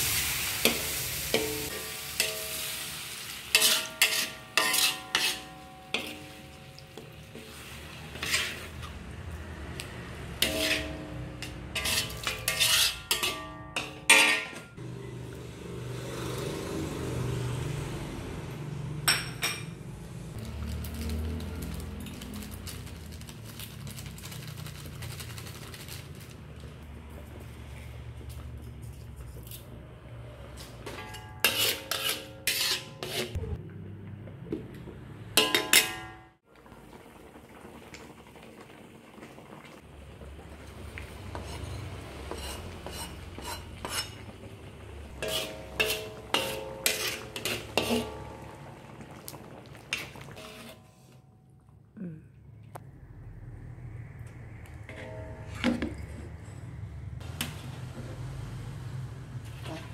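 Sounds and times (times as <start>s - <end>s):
broth simmering: 0.0s - 13.9s, 36.4s - 59.9s
metal ladle clinking on wok: 3.5s - 7.1s, 10.4s - 14.8s, 35.4s - 36.3s, 45.2s - 48.6s.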